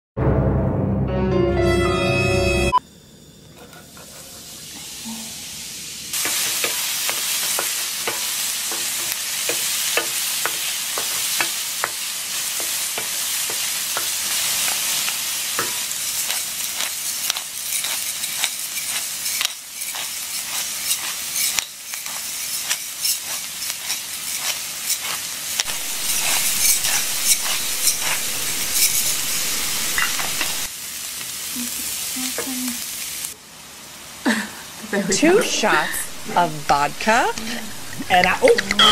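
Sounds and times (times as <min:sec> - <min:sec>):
food sizzling in a pot: 0:02.8 - 0:38.9
wooden spoon stirring: 0:16.3 - 0:30.7.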